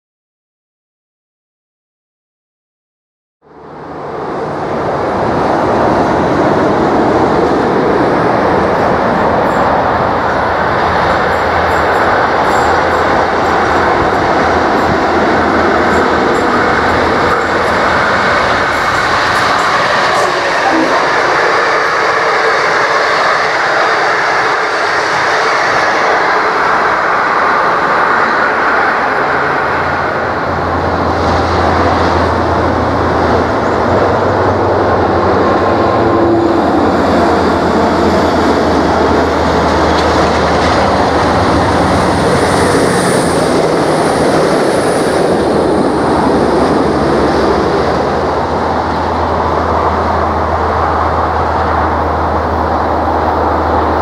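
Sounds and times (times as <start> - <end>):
low engine drone: 3.4 - 22.5
train wheels on rails: 3.7 - 54.0.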